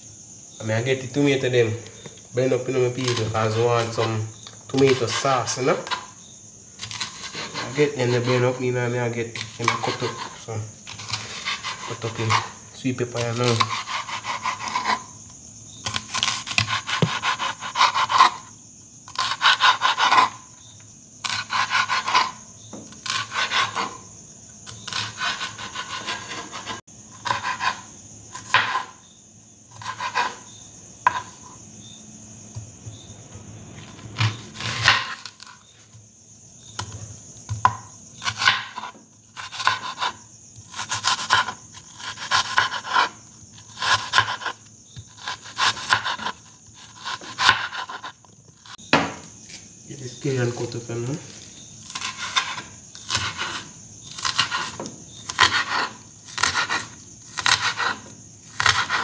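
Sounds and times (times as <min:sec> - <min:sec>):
knife cutting on cutting board: 0:06.8 - 0:08.5, 0:09.4 - 0:12.6, 0:15.9 - 0:18.4, 0:24.8 - 0:28.9, 0:29.8 - 0:30.4, 0:31.1 - 0:31.5, 0:51.9 - 0:59.0.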